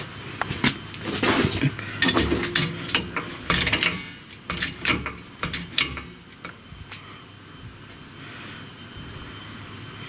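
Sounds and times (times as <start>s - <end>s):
floor jack clanking on concrete: 2.0s - 6.6s.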